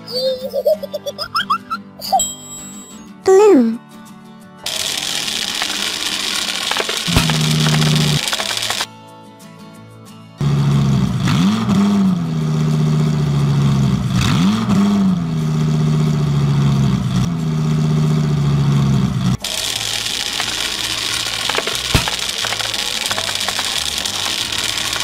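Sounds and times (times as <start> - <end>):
vehicle engine revving and running: 4.7 - 8.9, 10.4 - 25.0.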